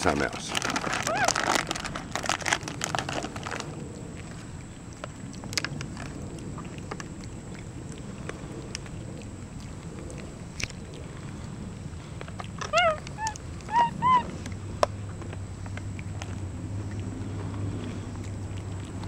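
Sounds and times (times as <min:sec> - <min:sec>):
plastic bag crinkling: 0:00.0 - 0:03.8
low outdoor rumble: 0:00.0 - 0:19.0.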